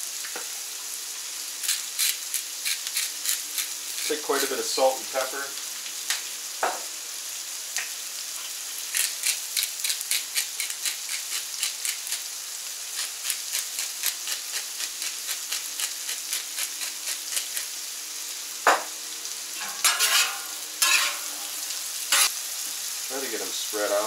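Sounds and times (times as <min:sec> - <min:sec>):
potatoes sizzling on griddle: 0:00.0 - 0:24.0
sharp knock: 0:18.7 - 0:18.9
metal spatula scraping: 0:19.6 - 0:22.4.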